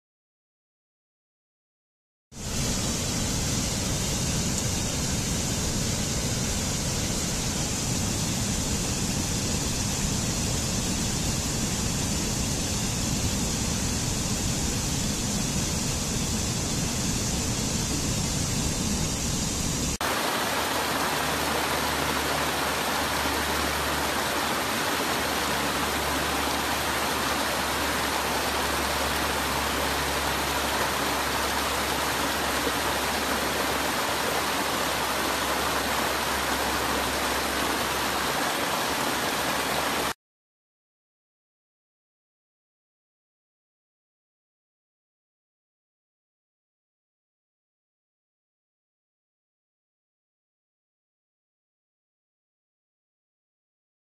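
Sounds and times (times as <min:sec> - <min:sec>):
stream rushing over rocks: 0:20.0 - 0:40.2.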